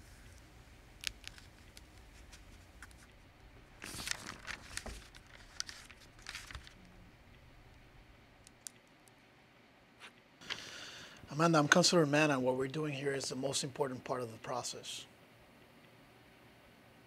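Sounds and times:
low room hum: 0.0 - 17.0
paper rustling: 1.0 - 8.6.

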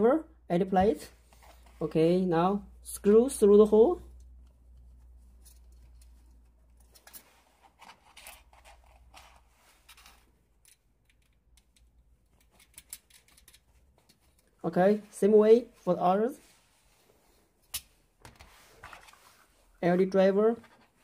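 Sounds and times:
small metal screws clicking: 9.9 - 13.7.

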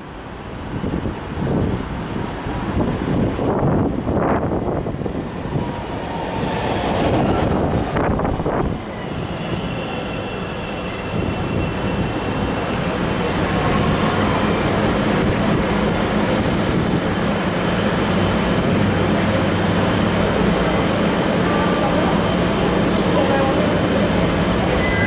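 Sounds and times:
train wheels rumbling: 1.1 - 25.0.

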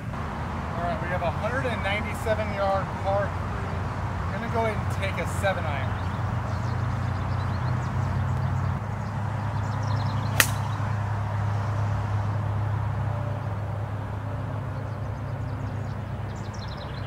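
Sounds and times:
golf club striking ball: 10.3 - 11.0.

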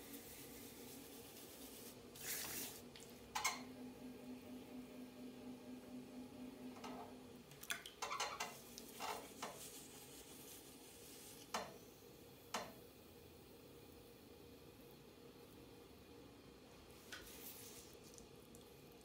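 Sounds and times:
potter's wheel humming: 0.0 - 12.4.

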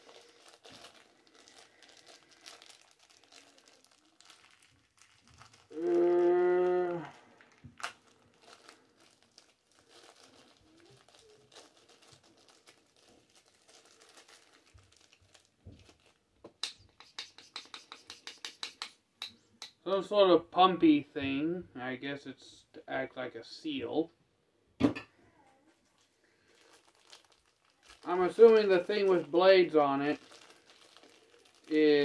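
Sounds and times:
plastic packaging crinkling: 0.0 - 18.4, 25.8 - 32.0.

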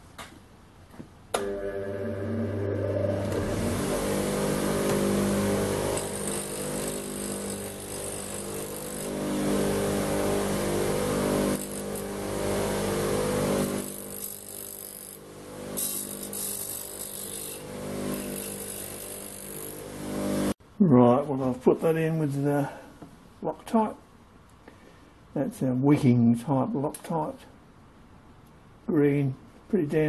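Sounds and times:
bench grinder motor hum: 1.4 - 20.6
needle grinding on wheel: 2.2 - 20.6.

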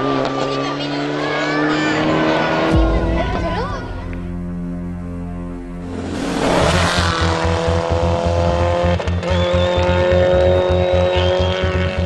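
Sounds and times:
rising whoosh: 2.1 - 8.8.

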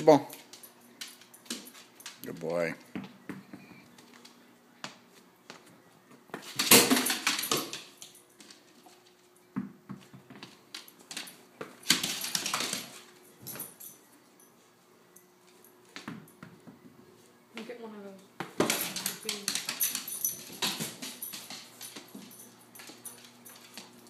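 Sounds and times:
dog claws clicking on tiles: 18.6 - 24.0.

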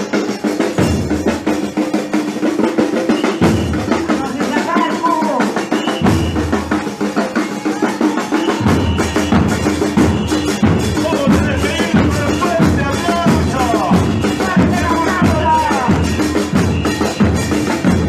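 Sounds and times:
bass drums and cymbals: 0.0 - 18.0
drums beating fast rhythm: 0.0 - 18.0
voices: 6.5 - 16.4.

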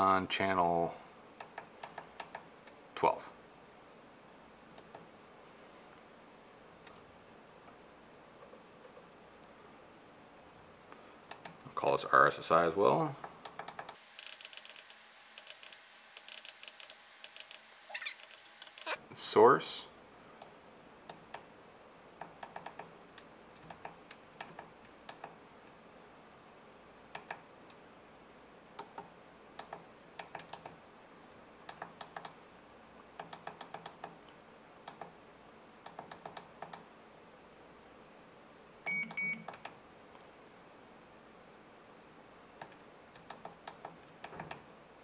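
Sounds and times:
short beep: 38.9 - 39.5.

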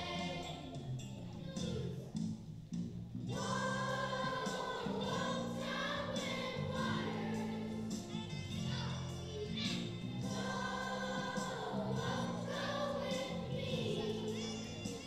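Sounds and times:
children's choir singing: 0.0 - 2.1, 3.3 - 15.0.

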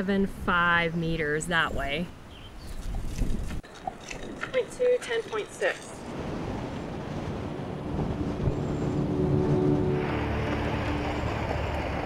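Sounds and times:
tyres on gravel: 2.6 - 6.2
truck engine running: 8.5 - 12.0.

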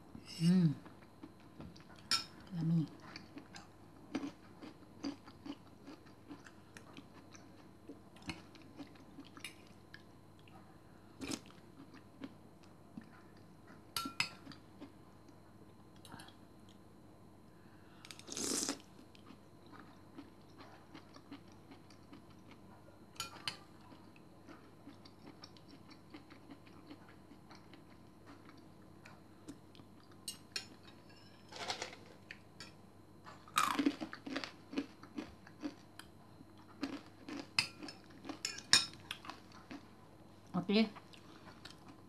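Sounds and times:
quiet chewing: 2.8 - 16.8, 18.0 - 31.0, 33.2 - 42.0.

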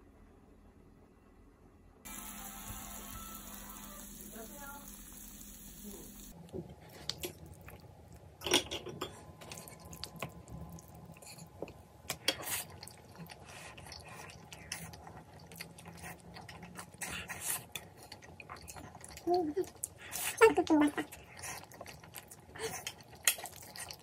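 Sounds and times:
people chewing and slurping noodles: 6.3 - 24.0.

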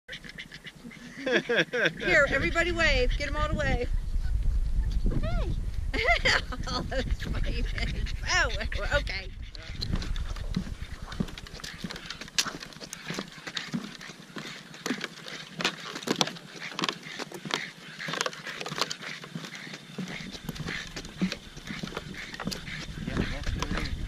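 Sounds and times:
footsteps on wooden boardwalk: 6.9 - 24.0.

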